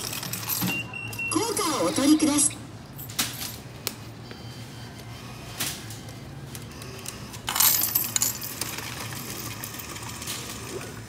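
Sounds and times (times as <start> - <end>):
coins clinking in a tray: 0.0 - 1.3, 7.5 - 10.0.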